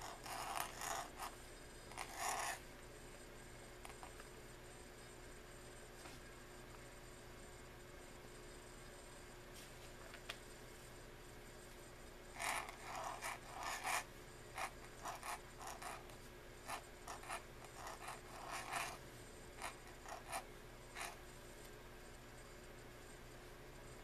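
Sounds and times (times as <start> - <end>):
pen nib scratching paper: 0.0 - 2.6, 12.4 - 19.0, 19.6 - 21.2.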